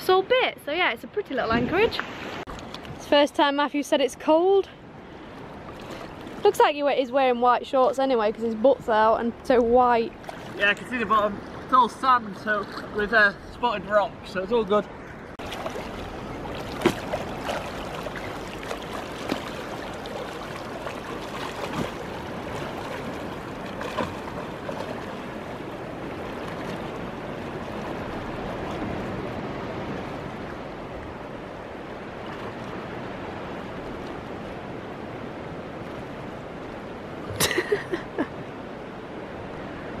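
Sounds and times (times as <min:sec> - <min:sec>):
water sloshing and splashing: 0:01.5 - 0:03.2, 0:04.9 - 0:08.2, 0:08.9 - 0:13.2, 0:15.0 - 0:37.6.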